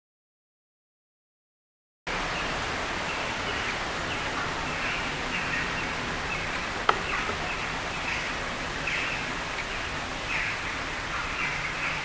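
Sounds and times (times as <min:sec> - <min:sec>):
outdoor hiss: 0:02.1 - 0:11.9
sharp tap: 0:06.5 - 0:07.7.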